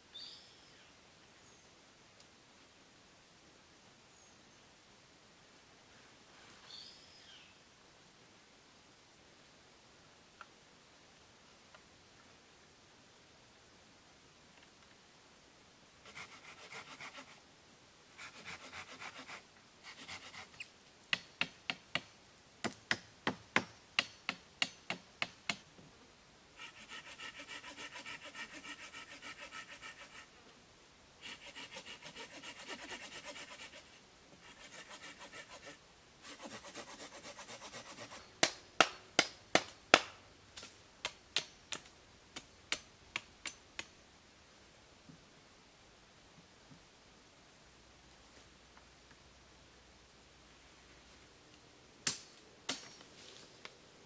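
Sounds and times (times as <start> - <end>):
knife sawing wooden pole: 16.0 - 17.4, 18.2 - 20.6, 26.6 - 30.3, 31.2 - 38.6.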